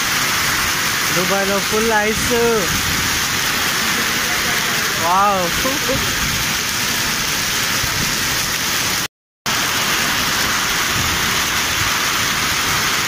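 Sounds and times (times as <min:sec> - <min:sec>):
hail and rain on pavement: 0:00.0 - 0:13.0.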